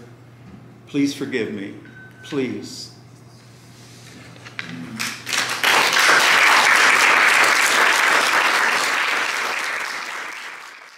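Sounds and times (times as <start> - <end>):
audience applauding: 5.0 - 10.9.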